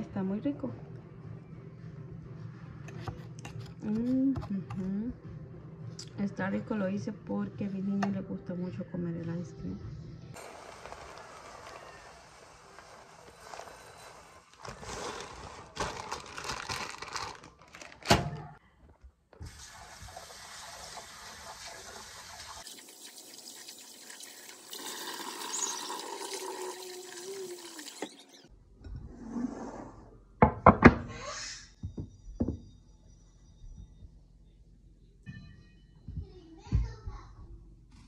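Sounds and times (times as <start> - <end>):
tap water running: 10.4 - 15.0, 19.4 - 28.5
rice poured into glass bowl: 10.4 - 16.2, 21.6 - 26.9.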